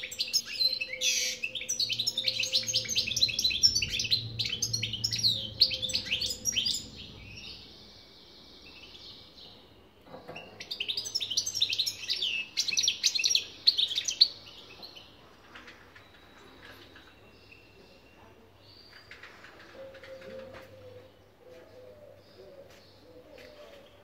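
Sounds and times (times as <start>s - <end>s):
goldfinch twittering song: 0.0s - 7.6s.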